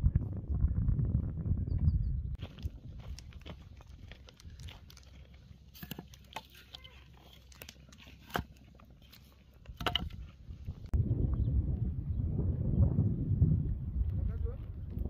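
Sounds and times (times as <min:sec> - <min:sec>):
twigs cracking and crunching: 0:02.4 - 0:11.0.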